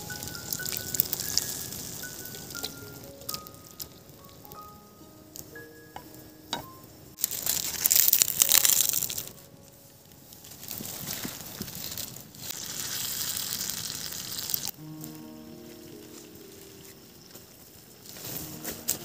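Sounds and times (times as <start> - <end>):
curry sizzling in a wok: 0.0 - 4.6, 11.7 - 14.7.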